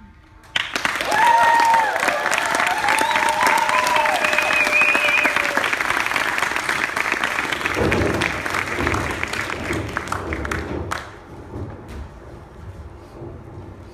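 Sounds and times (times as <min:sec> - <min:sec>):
audience clapping: 0:00.4 - 0:11.5
low rumbling: 0:07.5 - 0:13.9.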